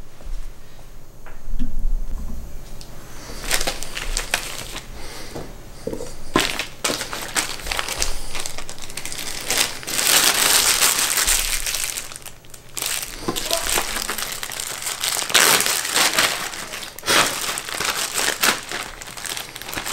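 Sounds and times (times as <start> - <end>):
plastic bags crinkling: 3.3 - 19.9.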